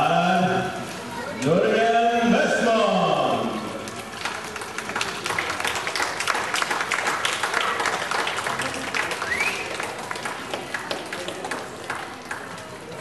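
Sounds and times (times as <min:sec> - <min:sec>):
spectators applauding: 0:03.8 - 0:12.9.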